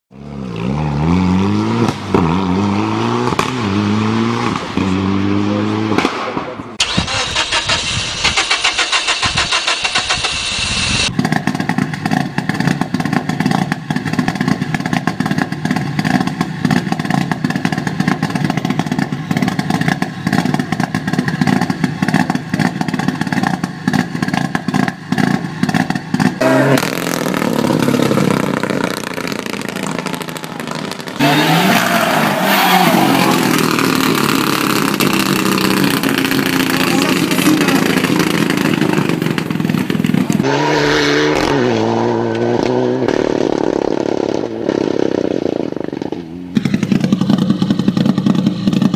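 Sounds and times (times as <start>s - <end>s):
exhaust crackling: 1.4s - 48.9s
car engine idling roughly: 35.0s - 40.4s.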